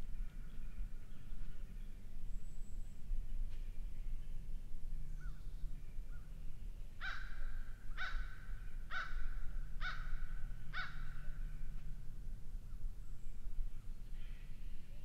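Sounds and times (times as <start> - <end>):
low steady rumble: 0.0 - 15.0
bird calling: 7.0 - 11.4.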